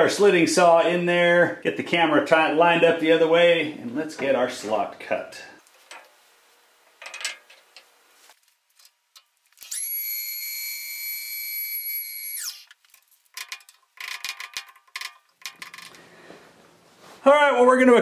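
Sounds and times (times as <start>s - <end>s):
power tool motor whining: 9.6s - 12.8s
metallic clinks and clatter: 12.9s - 16.0s.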